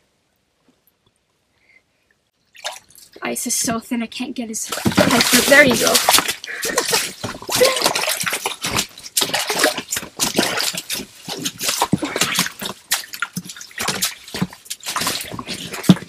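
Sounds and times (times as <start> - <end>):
water splashing and dripping: 2.4 - 3.7, 4.6 - 16.0.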